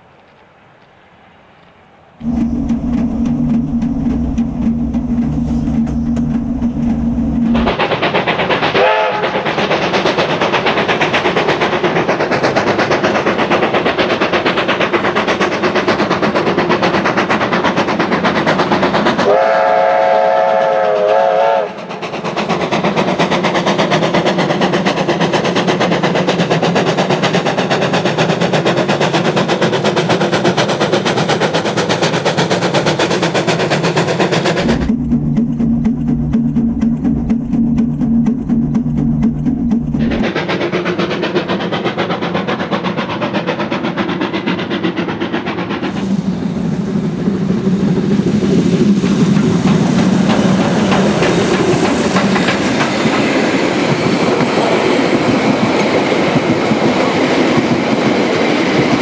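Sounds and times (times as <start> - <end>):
carriages clickety-clack over rails: 2.2 - 59.0
steam locomotive exhaust beats: 2.2 - 59.0
train whistle: 8.7 - 9.5, 19.2 - 22.0.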